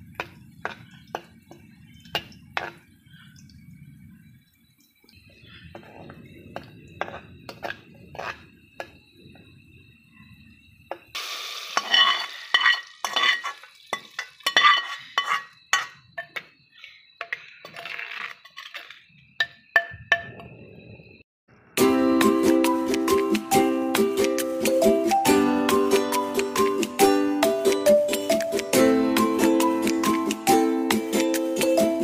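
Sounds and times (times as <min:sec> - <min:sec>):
hot oil hissing: 0:00.0 - 0:17.4
spoon clinking against pots: 0:00.1 - 0:02.8, 0:11.8 - 0:17.8
metal spoon scraping and clicking: 0:07.0 - 0:08.9, 0:11.8 - 0:19.0.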